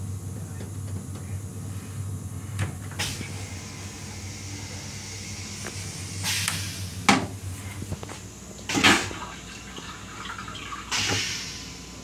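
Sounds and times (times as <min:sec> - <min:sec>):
toilet flushing: 0:08.6 - 0:12.0.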